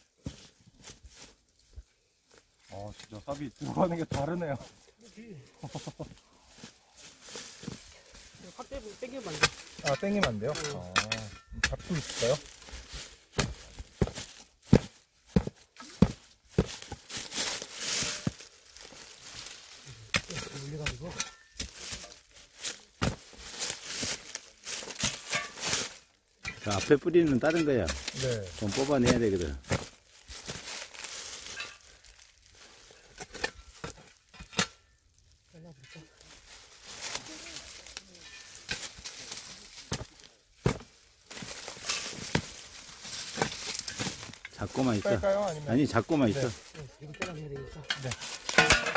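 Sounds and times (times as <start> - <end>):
dry leaves rustling: 0.0 - 48.9
roots and twigs snapping: 9.1 - 35.3, 35.9 - 45.1, 47.9 - 48.7
shovel chopping into soil: 9.3 - 12.4, 13.3 - 18.5, 20.1 - 28.4, 39.9 - 42.6, 43.2 - 44.4.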